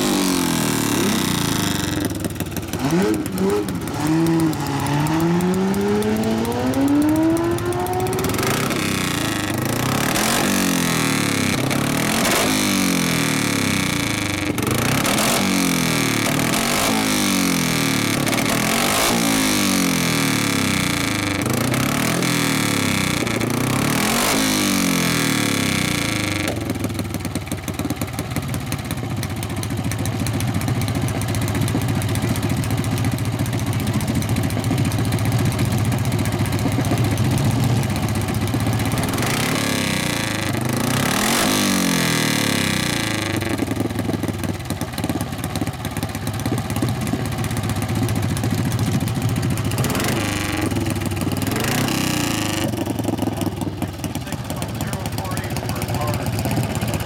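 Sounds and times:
racing engine running: 0.0 - 26.6, 46.8 - 57.0.

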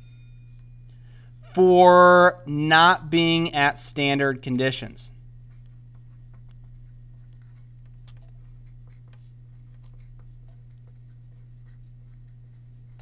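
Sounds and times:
steady low hum: 0.0 - 13.0
pen scratching on paper: 5.4 - 13.0.

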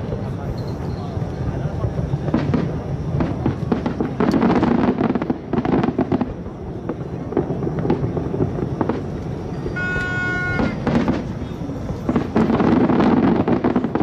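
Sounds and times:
fireworks bangs and crackles: 0.0 - 14.0
steady high tone: 9.2 - 11.8.

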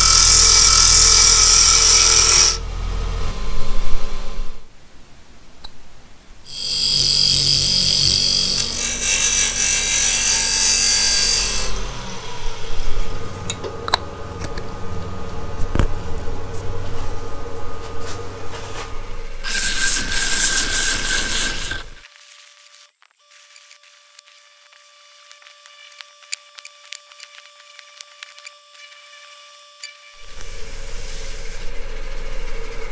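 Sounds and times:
wood lathe humming: 0.0 - 3.2, 6.5 - 16.6, 18.9 - 22.0
turning tool scraping wood: 19.4 - 31.6.

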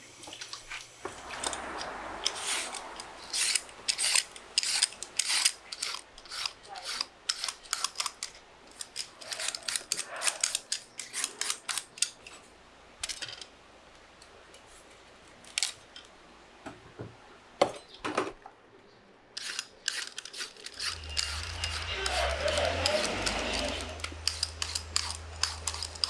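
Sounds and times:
knife trimming roots: 2.3 - 12.2, 19.4 - 26.0
peeler scraping sweet potato skin: 3.3 - 12.1, 19.4 - 26.0.

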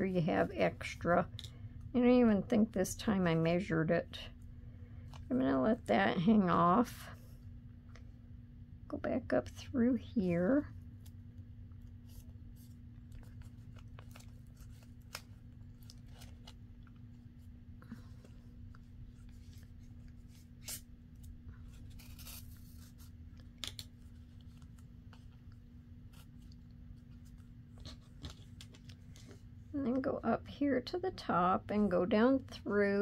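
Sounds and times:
steady low hum: 0.0 - 33.0
paper and thread rustling: 11.8 - 29.5.

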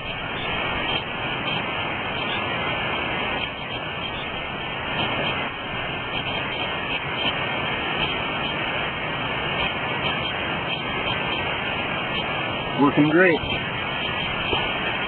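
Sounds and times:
creek rushing: 0.0 - 15.0.

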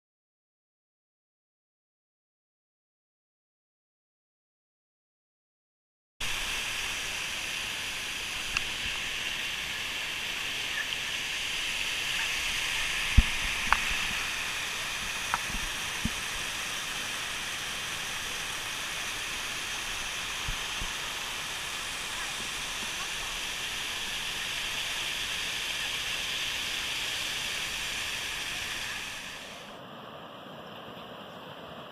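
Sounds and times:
waterfall rushing over rocks: 6.2 - 29.8.

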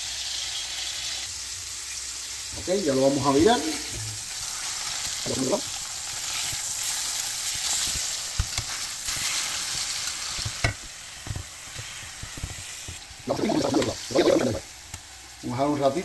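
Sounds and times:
fish sizzling in oil: 0.0 - 16.0.

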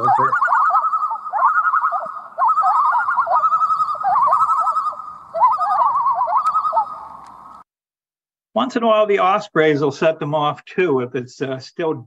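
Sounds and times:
loons tremolo calls: 0.0 - 7.6.

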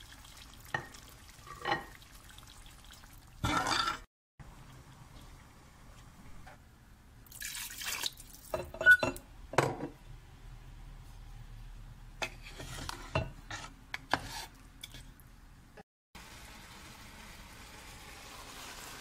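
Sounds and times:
water pouring into simmering pan: 0.0 - 3.5, 7.3 - 8.5, 16.2 - 19.0.

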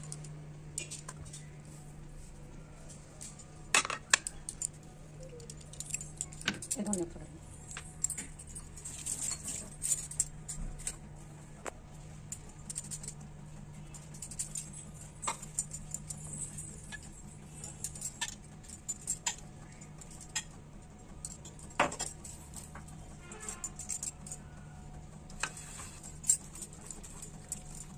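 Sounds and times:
steady low hum: 0.0 - 27.9.

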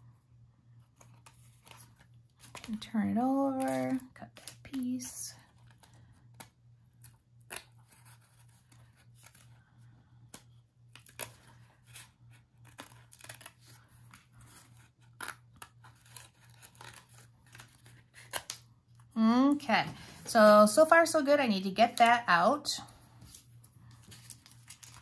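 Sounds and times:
scissors snipping paper: 14.8 - 18.6.

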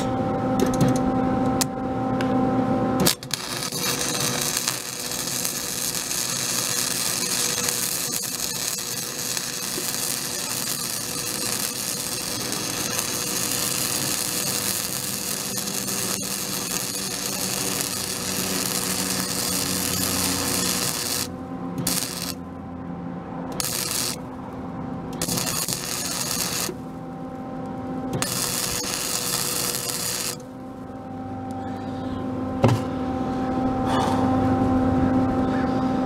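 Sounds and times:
welder arc crackling: 3.0 - 22.5, 23.5 - 24.3, 25.1 - 31.6.

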